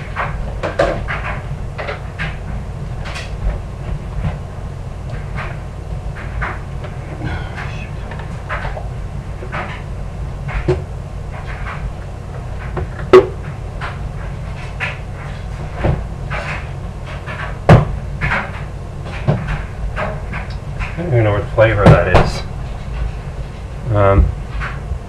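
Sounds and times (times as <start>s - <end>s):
low background hum: 0.0s - 25.0s
kitchen knocks and bumps: 17.7s - 18.5s.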